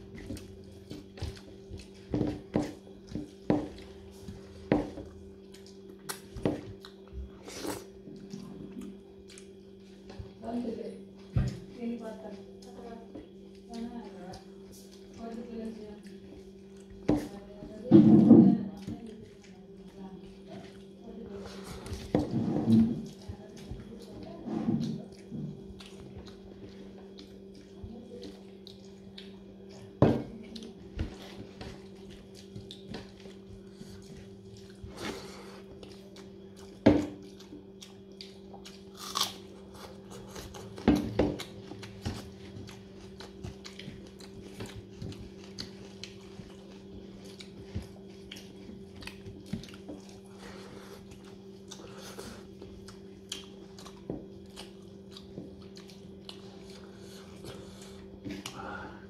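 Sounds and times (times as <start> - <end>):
steady low hum: 0.0 - 59.0
person chewing and biting: 31.8 - 58.7.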